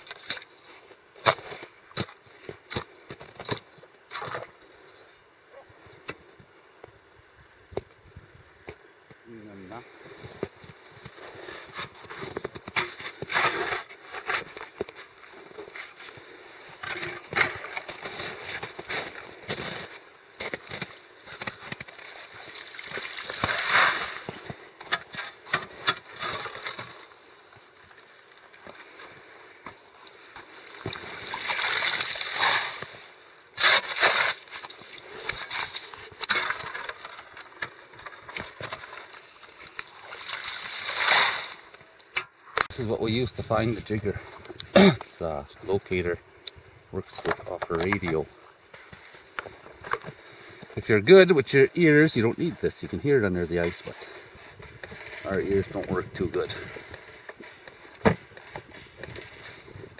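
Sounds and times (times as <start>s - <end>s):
shovel scraping and scooping slush: 11.2s - 15.1s, 15.7s - 27.0s, 30.8s - 37.3s, 39.9s - 41.7s
water splashing: 22.0s - 24.3s, 30.5s - 36.6s, 39.9s - 41.7s.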